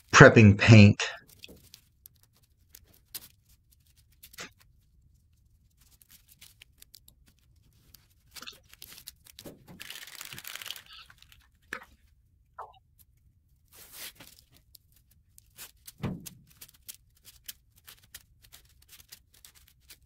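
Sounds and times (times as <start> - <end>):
masking tape tearing: 8.3 - 11.5.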